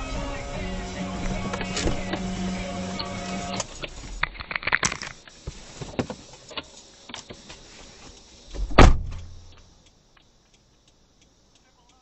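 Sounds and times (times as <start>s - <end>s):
heavy thump: 1.2s - 2.4s, 8.6s - 9.4s.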